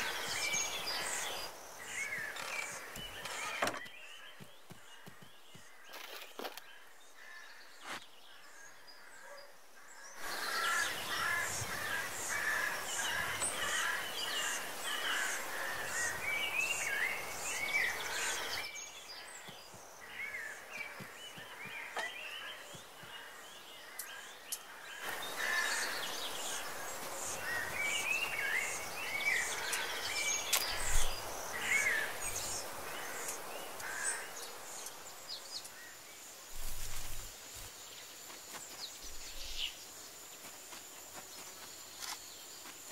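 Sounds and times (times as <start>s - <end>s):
birds chirping and twittering: 0.0s - 42.9s
steady background hiss: 9.6s - 42.9s.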